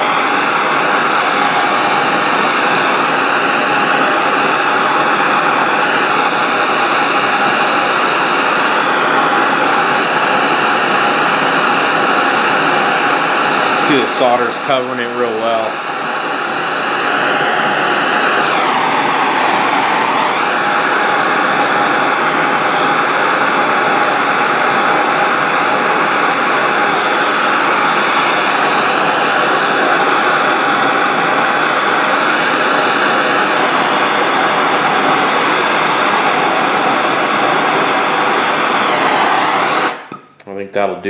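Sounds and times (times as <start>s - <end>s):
gas torch hissing: 0.0s - 40.4s.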